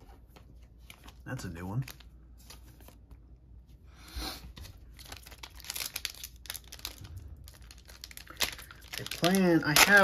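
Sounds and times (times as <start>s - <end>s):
foil wrapper crinkling: 4.9s - 10.0s.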